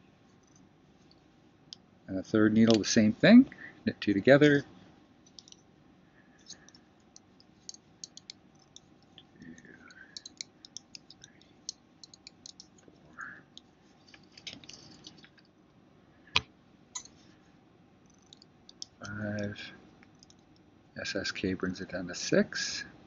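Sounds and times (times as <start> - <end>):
knitting needles clicking: 5.3 - 5.6, 6.5 - 12.9, 18.1 - 19.5, 20.1 - 20.6.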